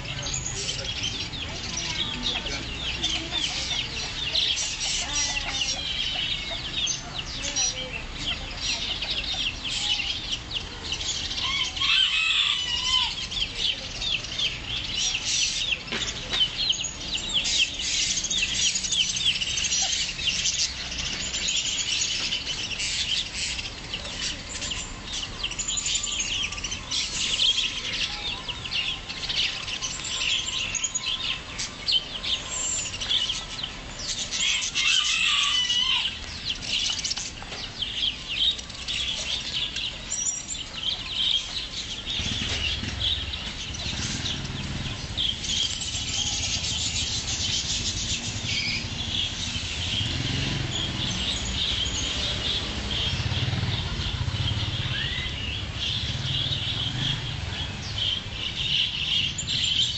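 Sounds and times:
chickens clucking: 0.0s - 14.2s
many birds chirping: 0.0s - 59.9s.

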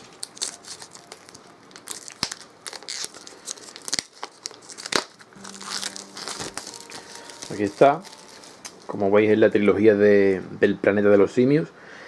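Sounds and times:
plastic wrap crinkling and tearing: 0.0s - 9.1s.

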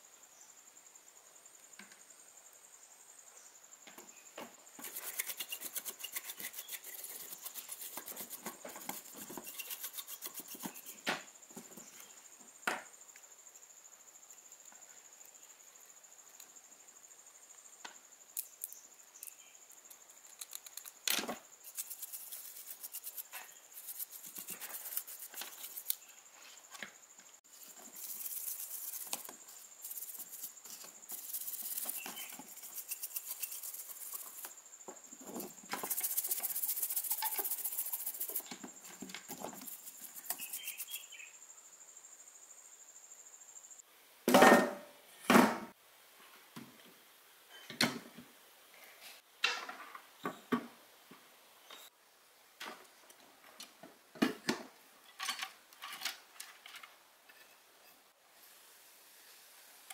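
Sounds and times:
rapid rubbing strokes: 4.8s - 11.0s, 21.6s - 26.0s, 27.5s - 34.6s, 35.4s - 38.5s, 39.2s - 41.1s.

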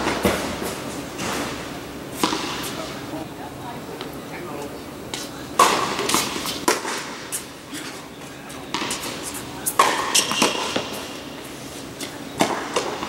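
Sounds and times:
tennis ball bounces: 2.2s - 2.8s, 5.1s - 7.4s, 8.5s - 11.2s, 12.0s - 13.0s
tennis racquet strikes: 2.2s - 2.8s, 5.1s - 8.0s, 8.6s - 11.2s, 12.0s - 13.0s.

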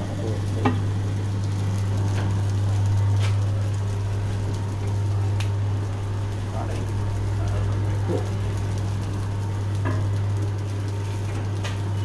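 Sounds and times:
packing machine humming: 0.0s - 12.0s.

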